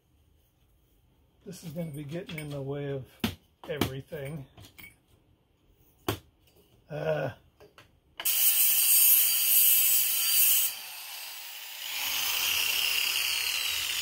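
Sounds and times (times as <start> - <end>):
angle grinder cutting metal: 8.2 - 14.0.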